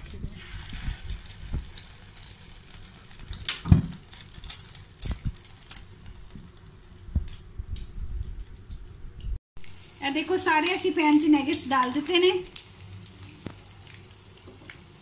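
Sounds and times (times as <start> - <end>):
food sizzling in oil: 0.0 - 6.6, 9.6 - 15.0.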